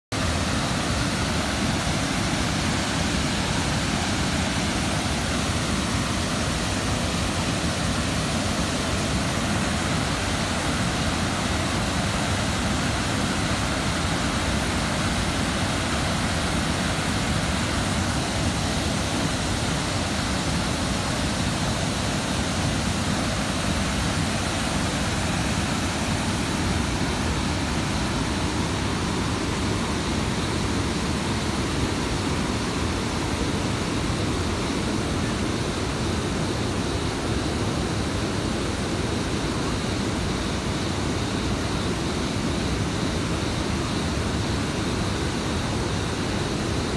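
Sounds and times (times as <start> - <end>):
waterfall rushing: 0.1 - 46.9.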